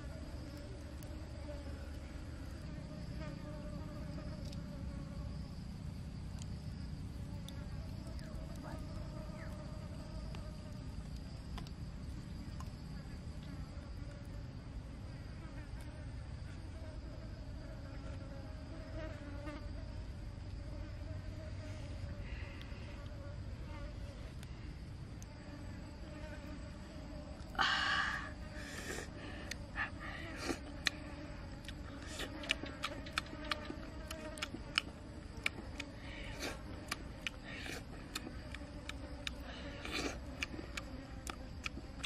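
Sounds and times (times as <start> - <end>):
insect buzzing: 0.0 - 42.0
faint clicks: 11.1 - 11.8.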